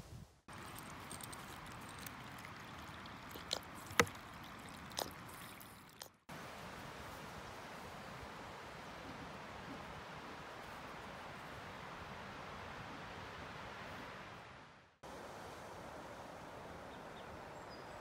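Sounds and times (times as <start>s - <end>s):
faint outdoor hiss: 0.0s - 18.0s.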